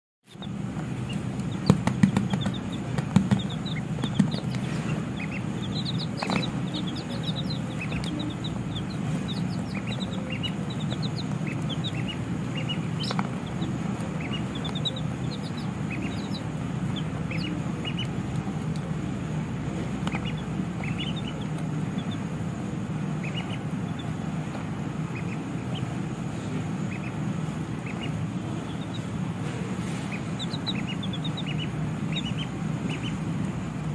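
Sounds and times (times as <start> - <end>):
chicks peeping: 0.3 - 33.9
steady low hum: 0.3 - 33.9
sharp knocks: 1.6 - 5.0.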